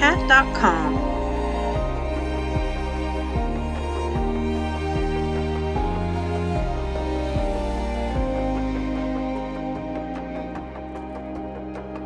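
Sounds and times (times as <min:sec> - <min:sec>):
background music with plucked notes: 0:00.0 - 0:12.0.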